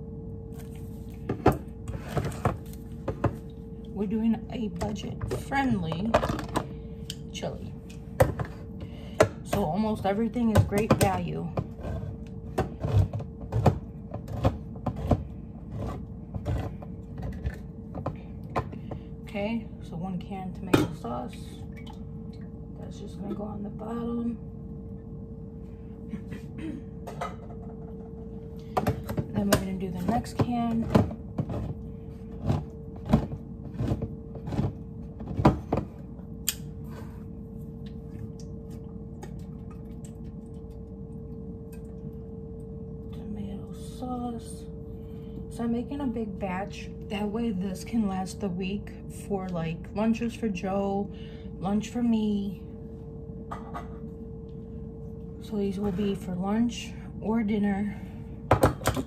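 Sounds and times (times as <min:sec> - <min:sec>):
steady hum: 0:00.0 - 0:59.0.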